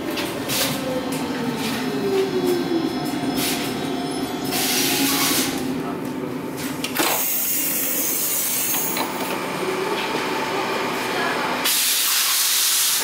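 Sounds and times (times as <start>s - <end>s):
loud burst of air hiss: 11.6s - 13.0s
compressed air hissing from train doors: 11.7s - 13.0s.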